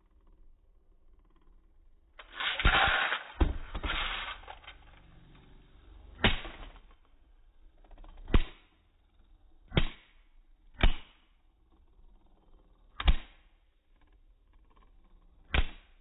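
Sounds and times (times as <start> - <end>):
spinning tops clashing: 2.2 - 4.9.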